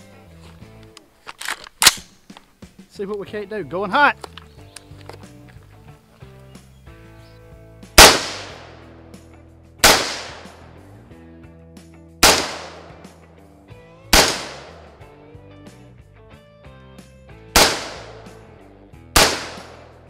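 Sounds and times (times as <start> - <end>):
rifle shots echoing: 8.0 - 8.9, 9.8 - 10.7, 12.2 - 13.1, 14.1 - 14.9, 17.5 - 18.4, 19.2 - 20.0.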